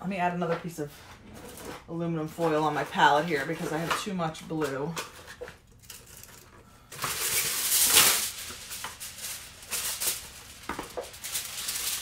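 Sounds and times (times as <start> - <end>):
foil crinkling: 4.6 - 12.0
aluminum foil tearing: 5.0 - 12.0.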